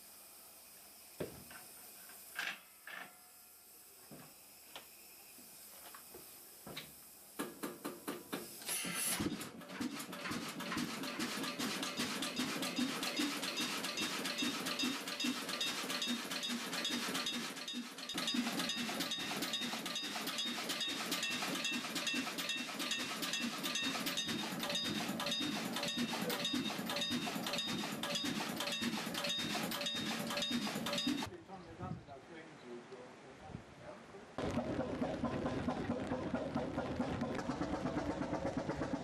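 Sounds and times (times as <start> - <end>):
marine engine knocking: 9.7 - 31.3, 34.4 - 39.0.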